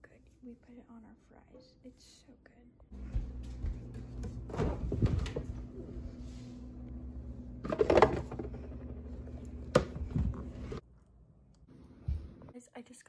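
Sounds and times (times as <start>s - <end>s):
low steady hum: 0.0s - 12.8s.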